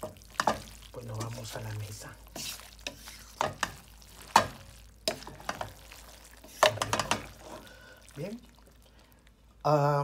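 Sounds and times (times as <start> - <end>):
utensil scraping frying pan: 0.0 - 8.0.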